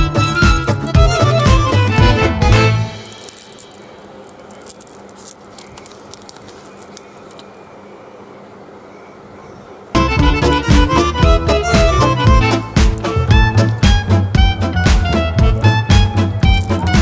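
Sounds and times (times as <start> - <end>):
plastic sachet crinkling: 0.2 - 1.7, 2.8 - 7.6, 12.8 - 14.0, 16.4 - 17.0.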